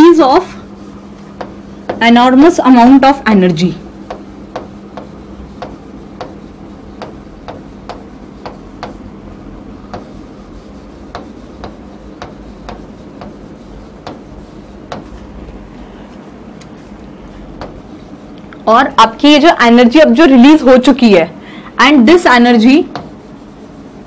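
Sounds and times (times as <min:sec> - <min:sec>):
steady low hum: 0:00.0 - 0:24.0
chalk clicking on chalkboard: 0:00.8 - 0:02.6, 0:03.4 - 0:09.2, 0:09.8 - 0:18.6, 0:22.6 - 0:23.9.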